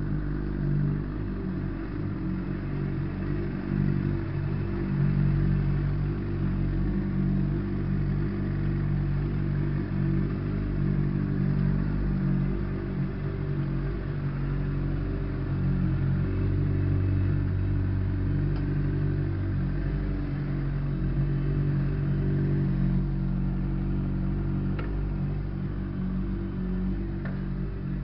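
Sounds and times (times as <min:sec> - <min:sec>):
motorcycle engine at low revs: 0:00.0 - 0:28.0.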